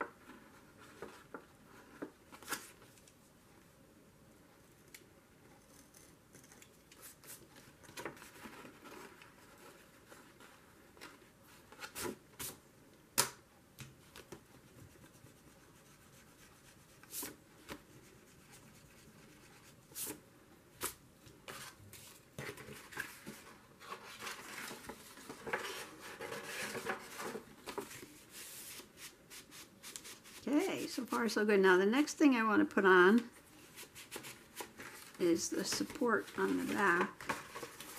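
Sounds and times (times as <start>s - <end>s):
paper handling: 20.8s - 29.2s, 33.7s - 37.9s.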